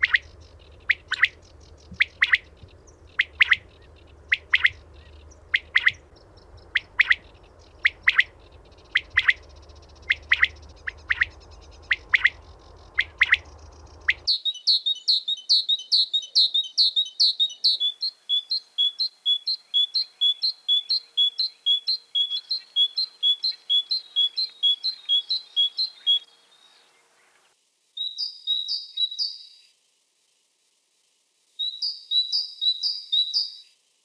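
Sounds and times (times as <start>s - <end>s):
low steady hum: 0.0s - 14.3s
quail calling: 0.0s - 26.3s
bird chirping fast: 0.0s - 26.9s.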